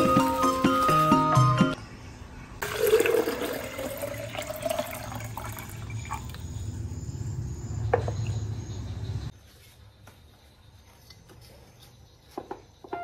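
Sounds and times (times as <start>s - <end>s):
water pouring into glass jar: 2.6s - 6.4s.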